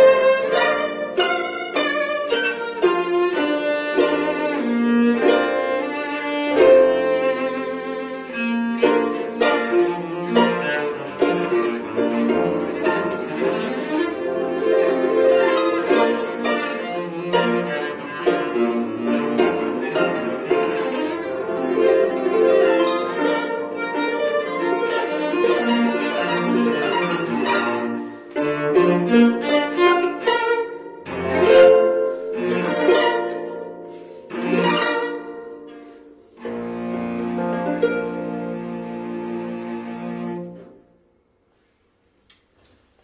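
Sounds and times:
bowed cello: 0.0 - 41.3
plucked harp notes: 8.8 - 28.2.

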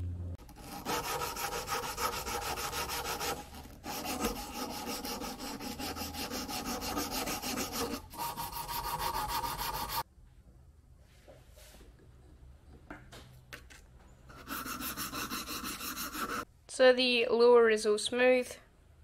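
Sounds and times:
sandpaper scratching on wood: 0.6 - 10.0, 14.3 - 16.5.

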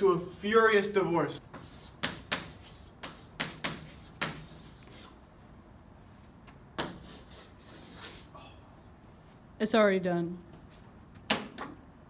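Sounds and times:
chalk scratching on chalkboard: 1.5 - 5.2, 6.8 - 8.3.

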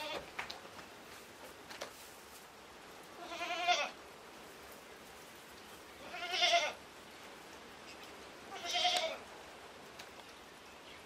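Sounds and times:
goat kid bleating: 0.0 - 0.3, 3.2 - 4.0, 6.0 - 6.8, 8.5 - 9.2.

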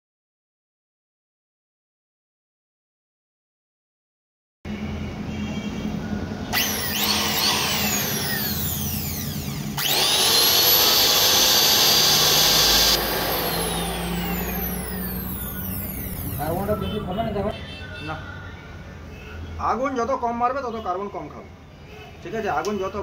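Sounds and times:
electric planer motor whine: 6.5 - 16.6.

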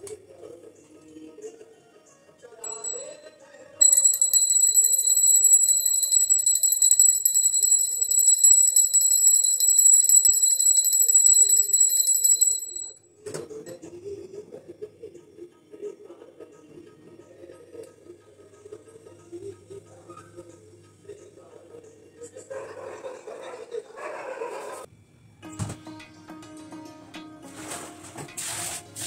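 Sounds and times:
small metal bell ringing rapidly: 2.6 - 13.0.

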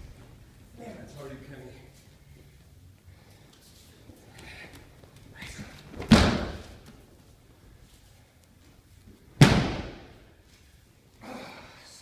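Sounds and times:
body landing on mat: 5.9 - 7.0, 9.4 - 10.2.

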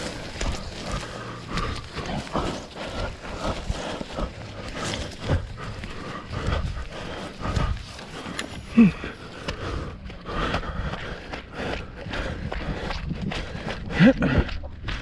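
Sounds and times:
runner breathing hard: 0.0 - 15.0
running footfalls: 0.0 - 15.0
low grunt: 8.6 - 9.2, 13.8 - 14.6.

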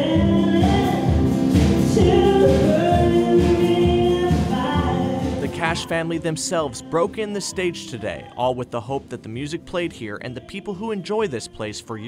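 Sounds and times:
woman singing: 0.0 - 8.4
acoustic guitars strumming: 0.0 - 11.4.

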